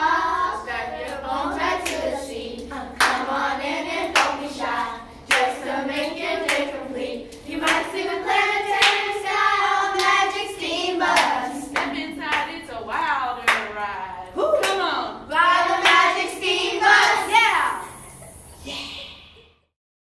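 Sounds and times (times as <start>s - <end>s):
women and children singing: 0.0s - 18.3s
hand claps: 4.0s - 4.4s, 5.3s - 6.7s, 7.3s - 7.9s.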